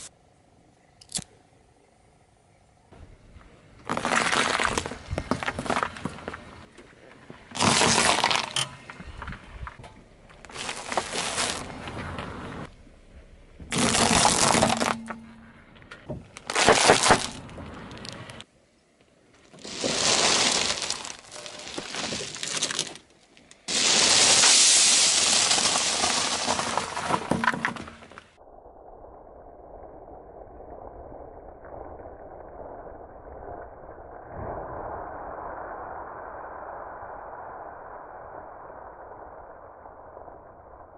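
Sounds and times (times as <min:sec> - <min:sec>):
car tyre crushing food: 0:03.8 - 0:06.7, 0:07.3 - 0:12.6, 0:13.6 - 0:15.4, 0:16.3 - 0:18.4, 0:19.6 - 0:28.2.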